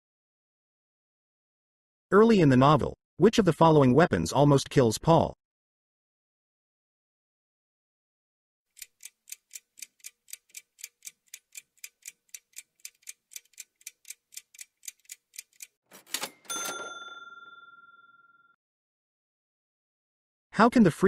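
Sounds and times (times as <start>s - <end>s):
clock ticking: 8.7s - 16.4s
bell-like ding: 16.2s - 18.6s.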